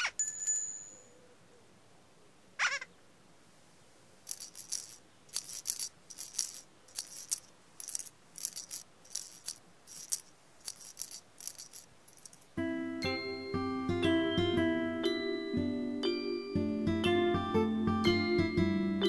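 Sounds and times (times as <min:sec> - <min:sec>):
shaker rattling: 0:04.2 - 0:12.6
plucked keyboard-like chord: 0:12.6 - 0:19.0.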